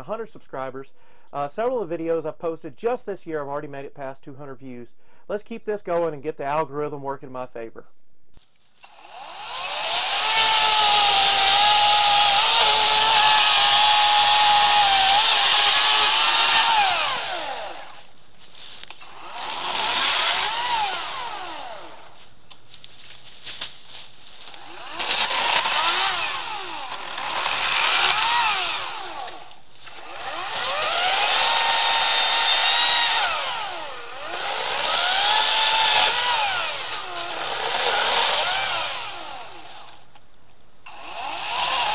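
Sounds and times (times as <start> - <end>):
electric chainsaw motor whining: 8.8 - 18.2, 18.8 - 22.3, 24.4 - 40.1, 40.9 - 41.9.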